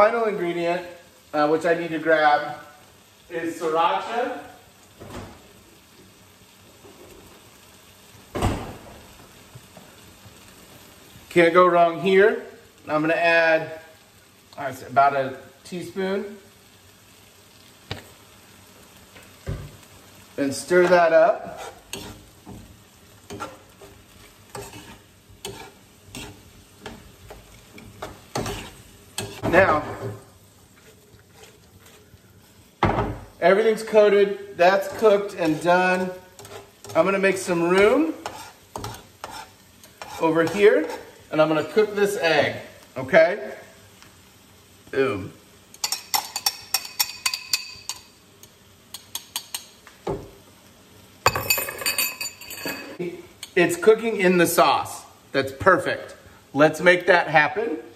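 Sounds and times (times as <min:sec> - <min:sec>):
faint sizzle: 0:00.0 - 0:57.9
utensil scraping a pan: 0:20.6 - 0:32.7, 0:33.8 - 0:41.2.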